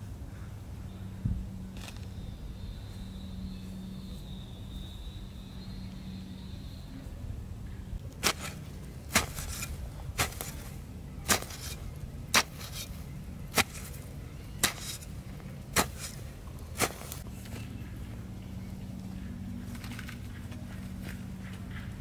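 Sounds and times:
garden hoe chopping into soil: 8.2 - 17.6.

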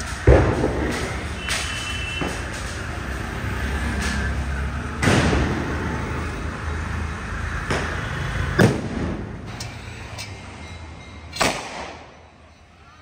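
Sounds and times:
firecracker bangs: 0.0 - 2.9, 5.0 - 5.9, 7.6 - 9.4, 11.4 - 12.2.

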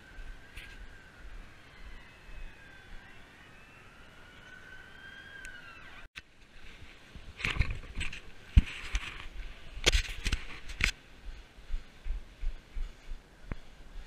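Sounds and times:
faint gliding whistle tones: 0.0 - 6.1
camera handling rustle: 7.4 - 11.0.

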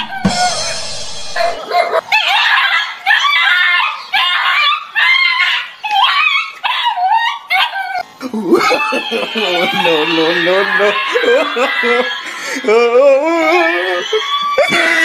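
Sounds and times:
rushing noise: 0.0 - 1.7
small dog yipping and whining: 1.4 - 8.0.

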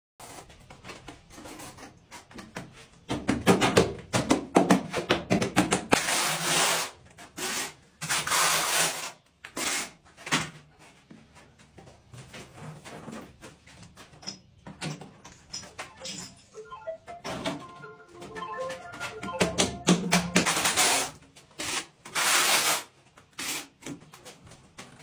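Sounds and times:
trowel scraping tile adhesive: 5.9 - 10.0, 20.5 - 23.9.

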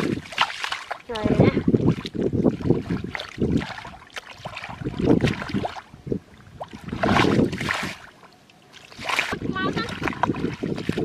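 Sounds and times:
water sloshing and splashing: 0.0 - 11.0.

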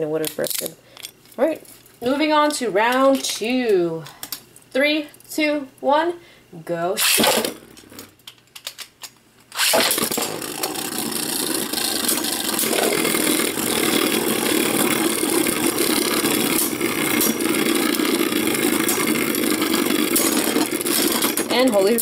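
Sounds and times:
spinning tops whirring rattle: 7.0 - 8.1, 9.6 - 22.0.

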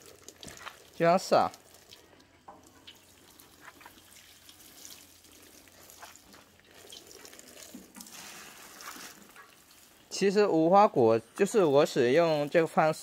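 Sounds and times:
water dripping: 0.0 - 13.0
watering can spray hiss: 7.6 - 9.8.

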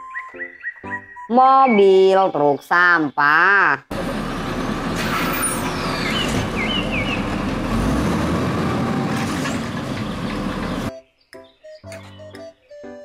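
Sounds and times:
garbage truck diesel engine: 3.9 - 10.9
hydraulic arm lifting cart: 4.0 - 10.9
short squeaks: 5.0 - 6.5.

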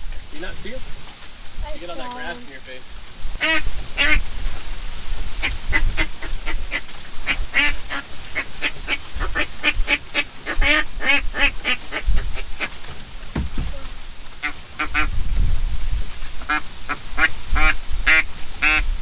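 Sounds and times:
duck call quacks: 3.4 - 4.2, 5.4 - 12.7, 14.4 - 15.1, 16.4 - 18.9.

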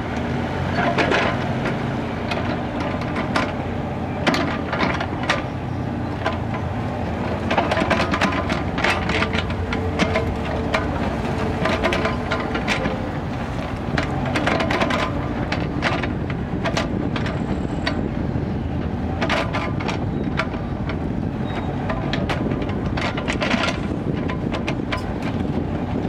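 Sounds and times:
diesel excavator engine running: 0.0 - 26.0
bucket clanking and scraping: 4.2 - 18.1, 19.1 - 25.6.

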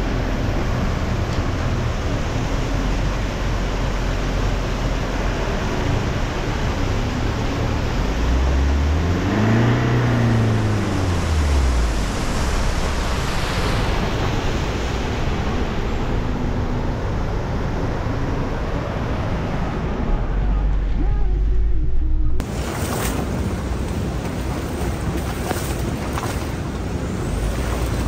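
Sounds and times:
suv engine revving: 7.0 - 14.2.

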